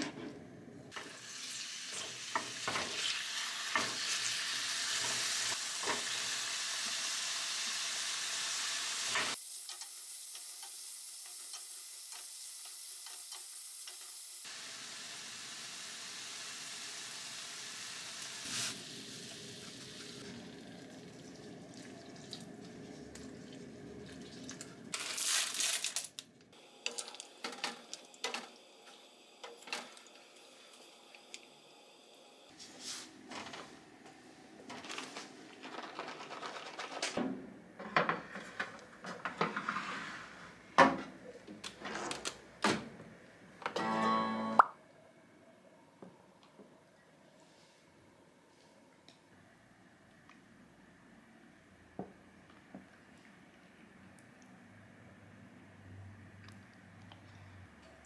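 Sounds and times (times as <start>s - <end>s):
meat sizzling in a frying pan: 1.1s - 19.3s
wooden spatula scraping a pan: 38.0s - 40.6s.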